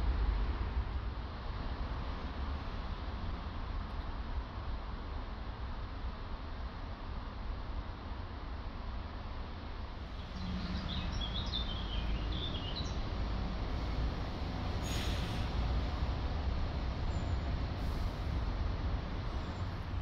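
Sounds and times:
distant road traffic: 0.0 - 20.0
brief rushes of noise: 14.8 - 15.7.

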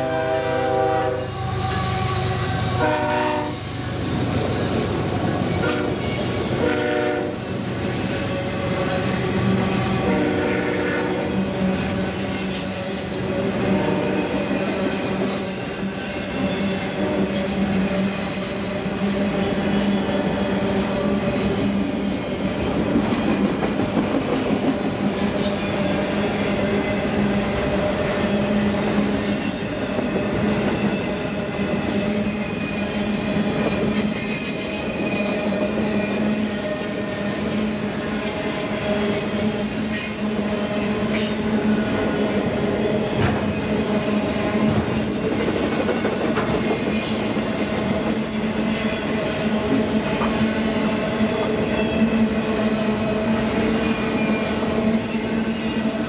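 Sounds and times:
freight train wheels rumbling: 0.0 - 56.0
high-pitched wheel squeals: 0.7 - 2.7, 11.8 - 13.4, 21.4 - 22.6, 29.0 - 43.0.

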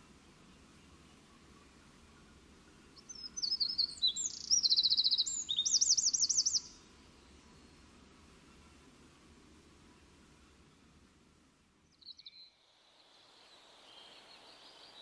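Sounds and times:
songbird singing trills: 1.0 - 7.8, 11.9 - 15.0.

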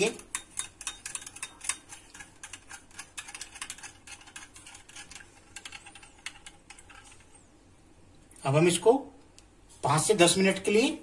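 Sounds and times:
metal spoon clinking against glass bowl: 0.0 - 7.0.

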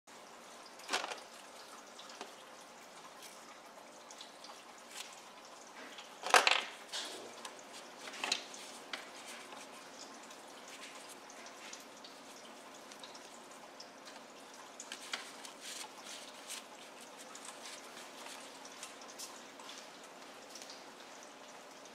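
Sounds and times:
plastic toys rustling and knocking: 0.9 - 1.3, 6.2 - 7.2, 8.0 - 9.6.

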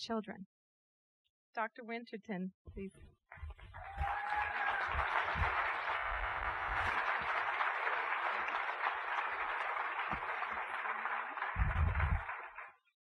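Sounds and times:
audience applauding: 3.4 - 12.8.

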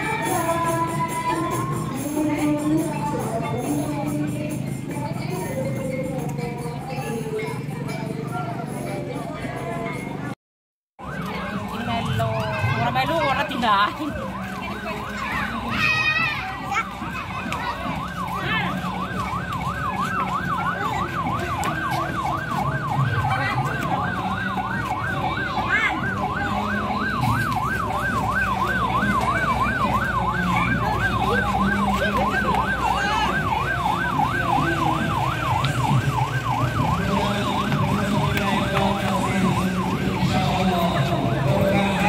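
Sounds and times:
electronic siren yelping: 13.2 - 42.0.

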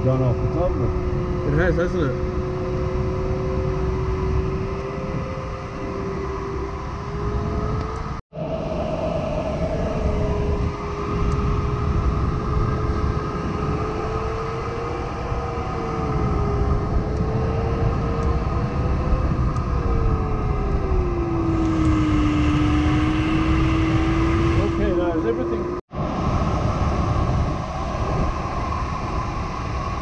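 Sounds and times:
electronic variometer tone: 0.0 - 25.8
cockpit airflow rushing: 0.0 - 30.0.

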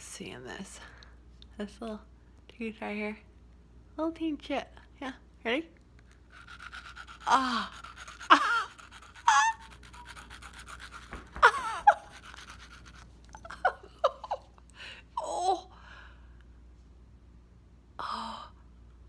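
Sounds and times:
nail file rasping on tooth: 6.2 - 13.1.

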